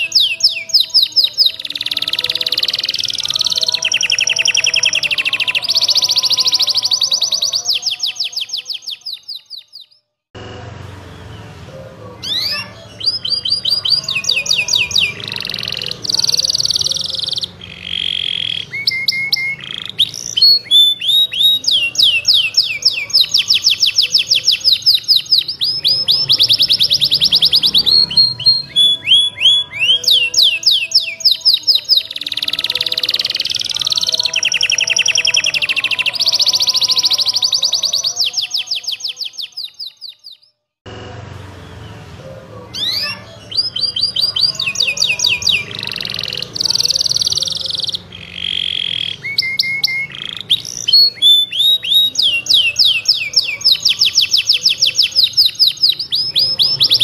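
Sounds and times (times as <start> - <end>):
canary singing trills: 0.0 - 10.1, 11.0 - 40.6, 41.4 - 57.0.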